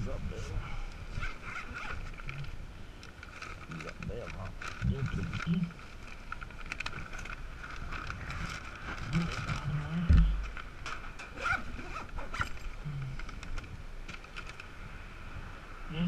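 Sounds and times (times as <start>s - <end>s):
backpack zipper: 1.1s - 2.4s, 11.3s - 12.6s
paper bag rustling: 3.1s - 10.8s.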